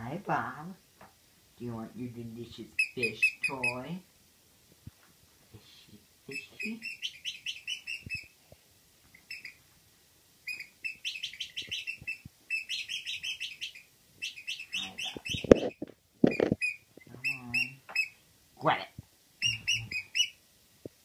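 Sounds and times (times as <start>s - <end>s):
heavy thumps: 15.2s - 16.6s.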